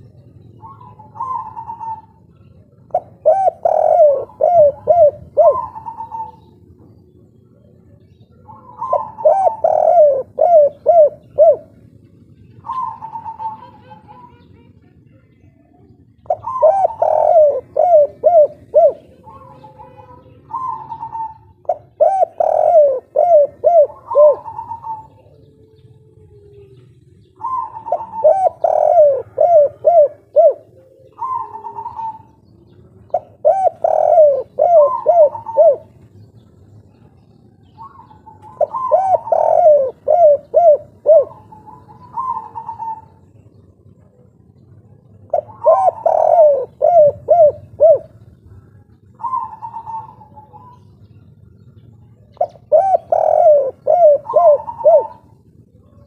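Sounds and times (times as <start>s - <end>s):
dove cooing: 0.0s - 56.0s.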